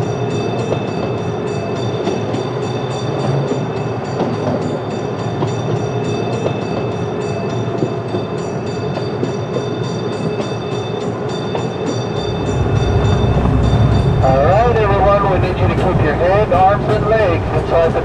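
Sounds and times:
miniature train whine: 0.0 - 18.0
low rumble: 12.1 - 18.0.

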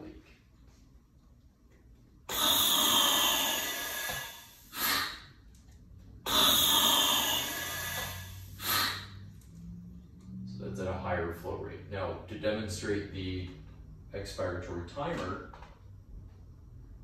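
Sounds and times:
hissing gas rush: 2.3 - 5.4, 6.2 - 9.2.

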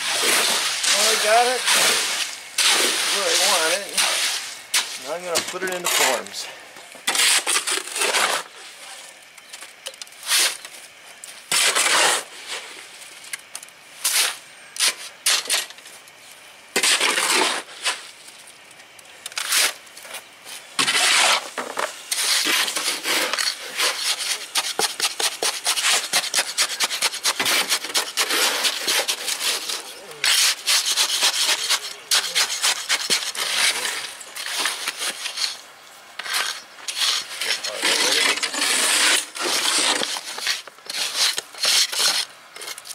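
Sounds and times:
hand float scraping concrete: 0.0 - 8.8, 11.5 - 12.7, 16.8 - 18.1, 20.8 - 35.6, 36.2 - 42.8
shovel scraping wet concrete: 0.0 - 8.8, 10.2 - 10.6, 11.5 - 12.8, 14.0 - 15.8, 16.8 - 18.1, 19.4 - 19.8, 20.7 - 35.6, 36.2 - 42.8.

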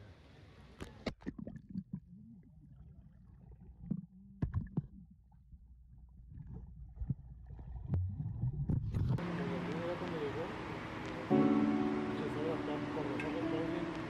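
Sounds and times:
underwater low rumble: 0.9 - 10.2.

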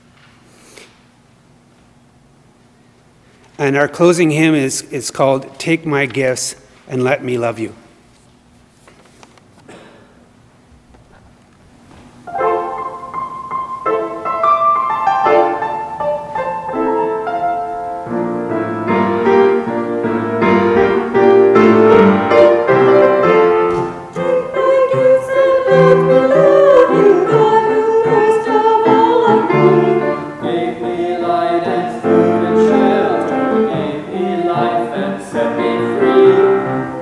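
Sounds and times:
piano playing hymn: 12.2 - 37.0.

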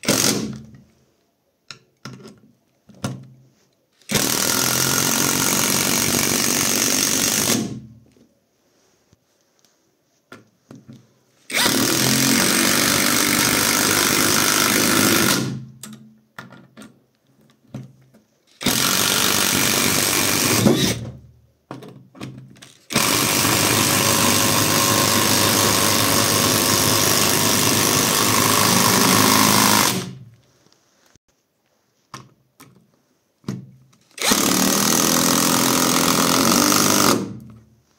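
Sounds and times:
impact wrench driving screws into wood: 0.0 - 0.8, 4.0 - 7.9, 11.5 - 16.0, 18.5 - 21.2, 22.2 - 30.3, 33.5 - 37.6.

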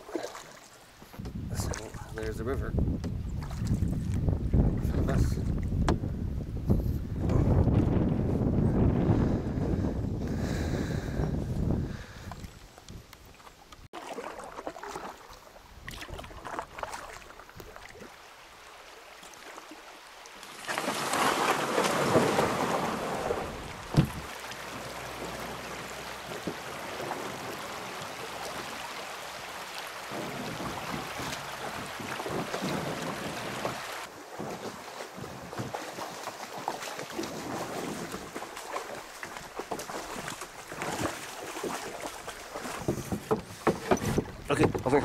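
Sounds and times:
river water over rocks: 0.0 - 1.0, 12.4 - 45.0.

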